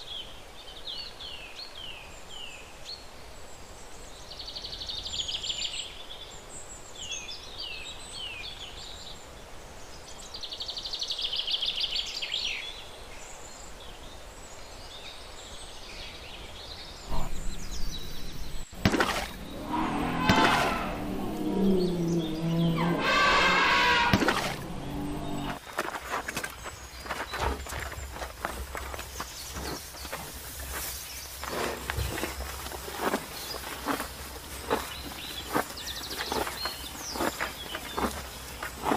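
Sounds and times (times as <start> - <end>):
outdoor background noise: 0.0 - 38.9
birds chirping: 15.6 - 38.9
sharp cracks: 18.7 - 21.4.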